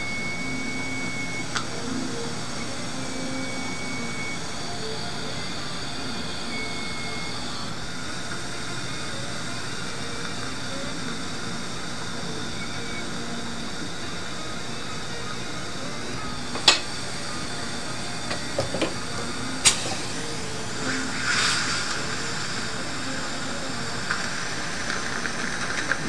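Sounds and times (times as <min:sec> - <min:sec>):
faint high whines: 0:00.0 - 0:26.0
mechanical whirring hiss: 0:00.0 - 0:26.0.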